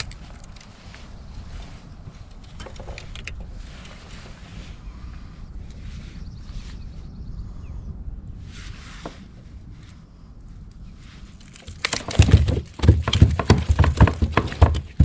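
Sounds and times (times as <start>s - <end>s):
low rumble: 0.0s - 11.6s
fish slapping and knocking on hull: 11.6s - 15.0s.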